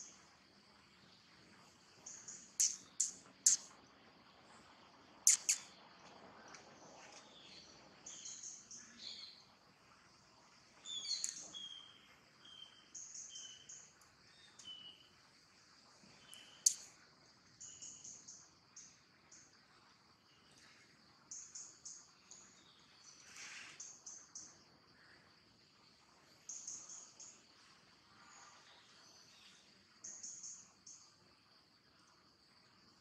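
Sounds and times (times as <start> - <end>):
birds chirping: 2.0 - 3.7, 5.3 - 5.7, 10.8 - 15.1.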